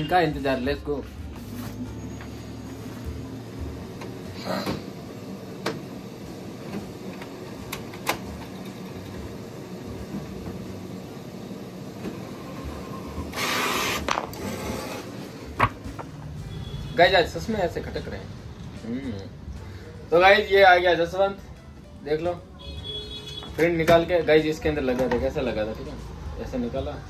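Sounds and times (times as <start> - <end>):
printer mechanical hum: 0.8 - 17.9.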